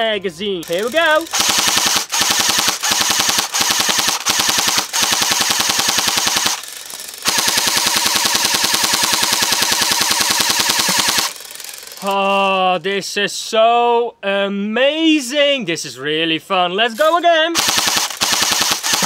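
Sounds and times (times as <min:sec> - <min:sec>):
airsoft rifle firing full auto: 0:00.7 - 0:11.8, 0:17.6 - 0:19.0.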